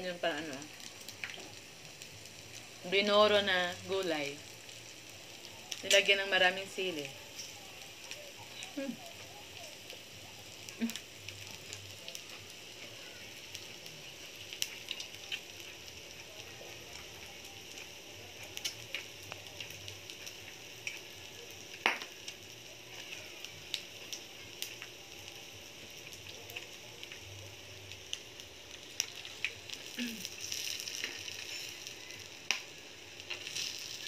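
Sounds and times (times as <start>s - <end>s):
meat sizzling on a grill: 0.0s - 34.0s
pops and clicks: 21.8s - 22.2s, 32.4s - 34.0s.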